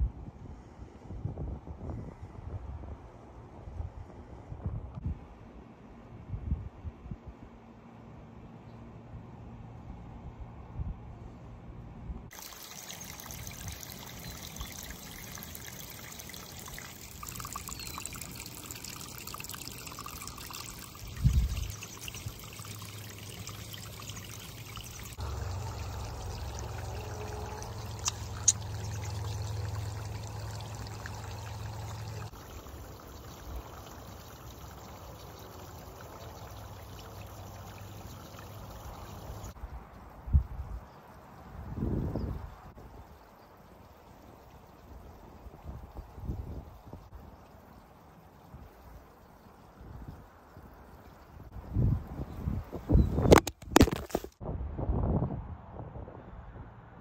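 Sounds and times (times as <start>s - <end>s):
running water trickling: 12.3s - 54.4s.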